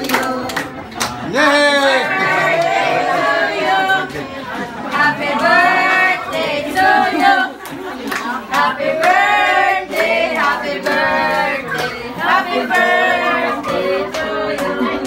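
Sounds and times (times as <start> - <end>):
group singing together: 0.0 - 15.0.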